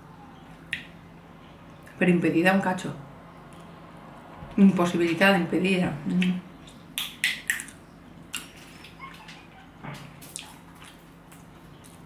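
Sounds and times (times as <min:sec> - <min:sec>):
faint hum: 0:00.0 - 0:12.0
wet mouth clicks and smacks: 0:00.7 - 0:00.9, 0:06.2 - 0:08.5.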